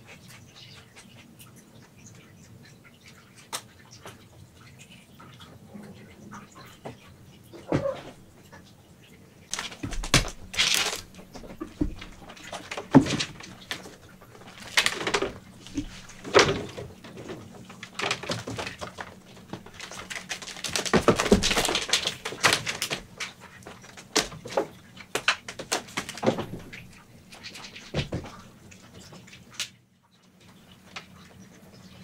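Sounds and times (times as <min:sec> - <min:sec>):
knocks and thumps: 0:07.6 - 0:08.3, 0:09.5 - 0:26.9, 0:27.9 - 0:28.4.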